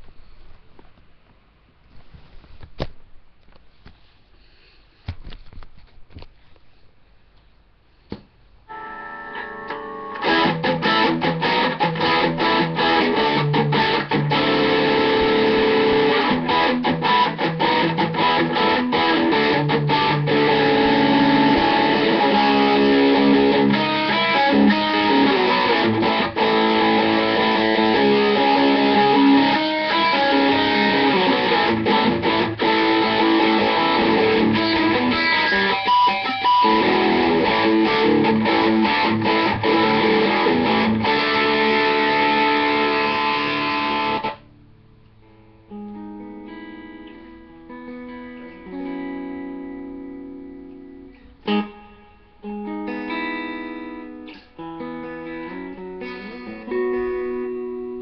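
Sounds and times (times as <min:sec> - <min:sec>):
electric guitar playing: 0:08.7 - 0:58.0.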